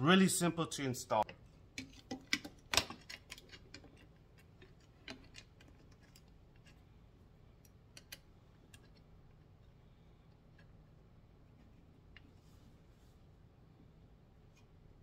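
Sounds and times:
small parts clicking and tapping: 0:01.2 - 0:06.8, 0:07.5 - 0:09.5.

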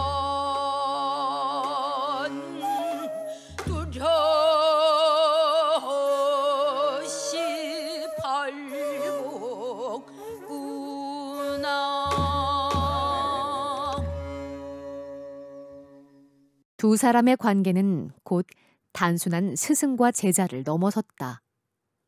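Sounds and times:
woman singing with vibrato: 0:00.0 - 0:14.6
sustained accompanying instrument: 0:08.7 - 0:16.6.

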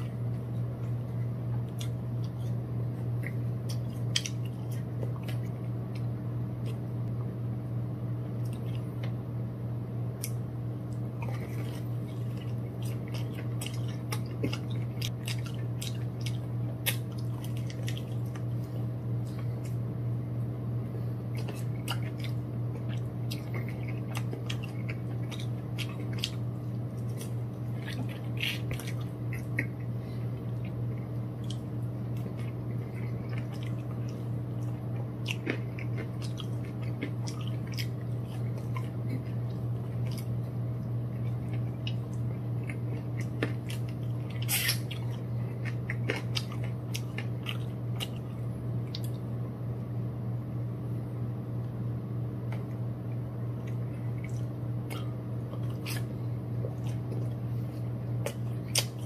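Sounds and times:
person chewing crispy food: 0:00.0 - 0:06.9, 0:08.4 - 0:09.2, 0:10.2 - 0:19.9, 0:21.0 - 0:49.3, 0:53.6 - 0:59.0
low hum: 0:00.0 - 0:59.0
wet mouth clicks: 0:58.2 - 0:59.0.

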